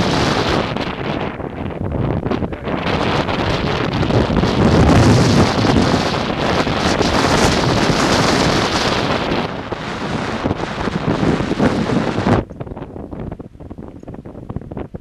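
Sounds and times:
gusty wind buffeting microphone: 0:00.0 - 0:15.0.

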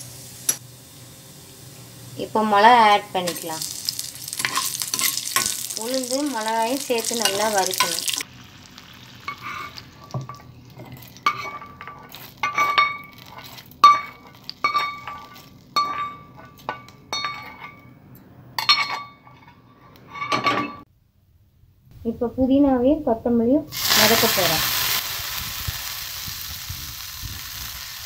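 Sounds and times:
spoon scraping iron pan: 0:04.3 - 0:08.2, 0:09.3 - 0:17.9
metal spoon clinking on steel jar: 0:13.8 - 0:17.8.

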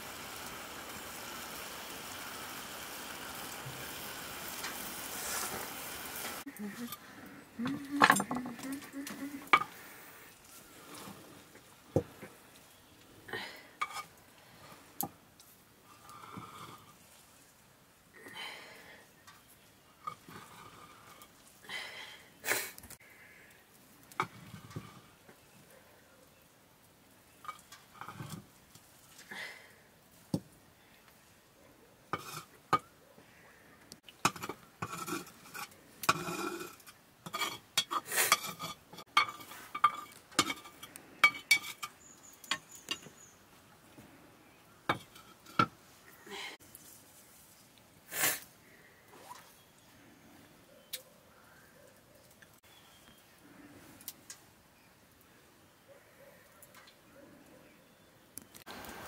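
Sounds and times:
metal spoon clinking and scraping pot: 0:32.1 - 0:32.9, 0:34.2 - 0:43.2, 0:44.9 - 0:45.7.

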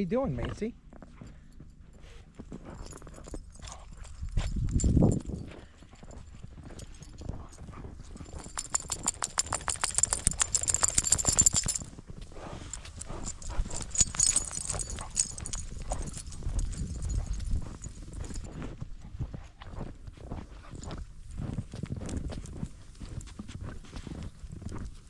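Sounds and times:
footsteps crunching through snow: 0:11.8 - 0:25.0.

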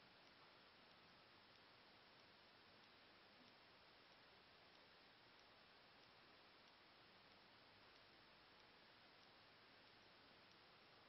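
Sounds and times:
faint hiss: 0:00.0 - 0:11.0
faint ticking: 0:00.0 - 0:11.0.

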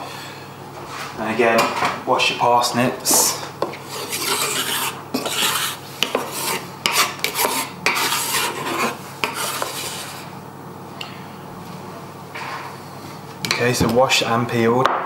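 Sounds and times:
knife scraping wooden board: 0:03.1 - 0:10.3.

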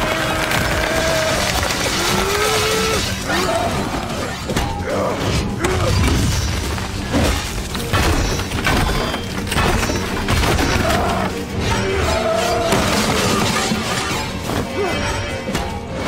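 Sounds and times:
debris crashing: 0:00.0 - 0:04.7
wood cracking and smashing: 0:00.0 - 0:04.8, 0:05.6 - 0:11.5, 0:12.6 - 0:14.8
background music: 0:00.0 - 0:16.0.

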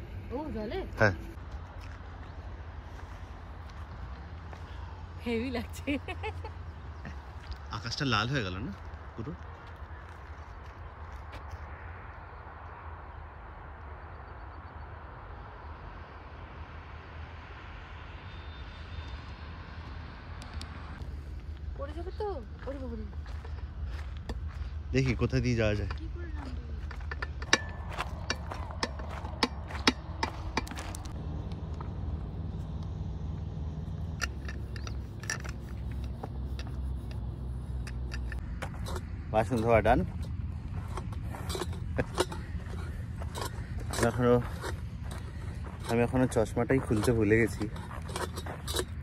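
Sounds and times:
metal pots clinking and knocking: 0:27.0 - 0:30.9.

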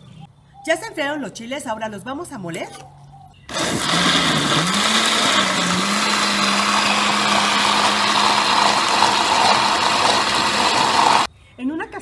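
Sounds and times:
blender motor running: 0:03.5 - 0:11.3.

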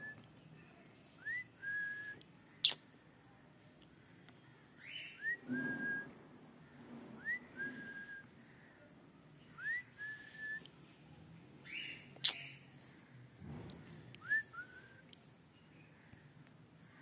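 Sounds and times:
rising whistles: 0:07.2 - 0:08.3.

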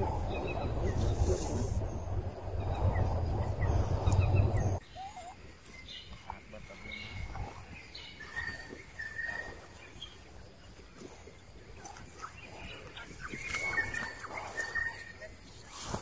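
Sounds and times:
rustling of leaves and bamboo: 0:00.0 - 0:16.0.

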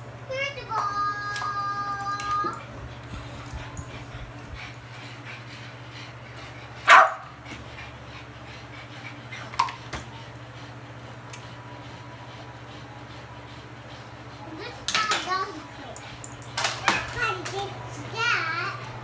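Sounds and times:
puppy barking: 0:06.8 - 0:07.3.

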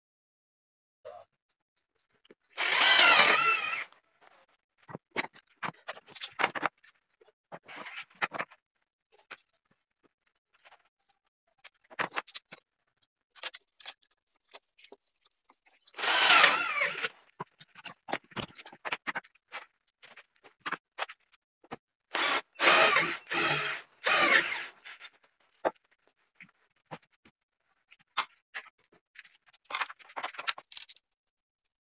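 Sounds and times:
power drill boring with whine: 0:02.6 - 0:03.9, 0:15.9 - 0:17.1, 0:22.1 - 0:25.1.

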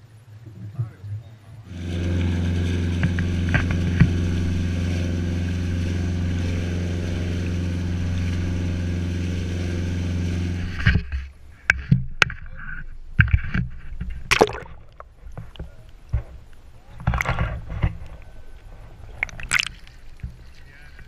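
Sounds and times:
boat engine droning: 0:01.7 - 0:11.8, 0:16.7 - 0:20.3.

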